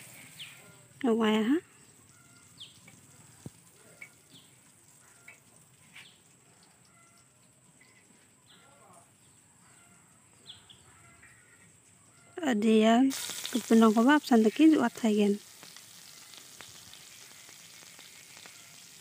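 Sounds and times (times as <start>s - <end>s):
faint bird chirps: 0.2s - 12.9s.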